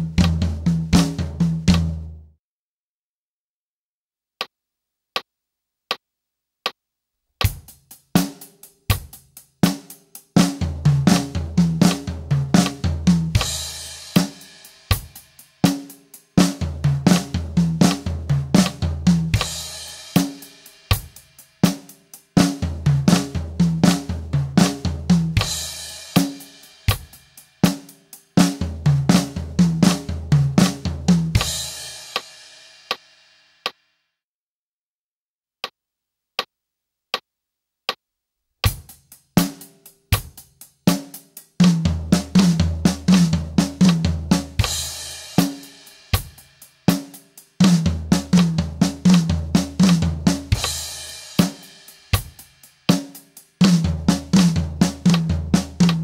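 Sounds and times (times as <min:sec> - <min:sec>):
fast snare drumming: 0:00.0 - 0:02.1, 0:07.4 - 0:32.3, 0:38.6 - 0:56.0
bass drum: 0:00.0 - 0:02.2, 0:10.5 - 0:13.8, 0:16.5 - 0:19.7, 0:22.4 - 0:25.8, 0:28.5 - 0:31.8, 0:41.6 - 0:45.0, 0:47.6 - 0:51.5, 0:53.6 - 0:56.0.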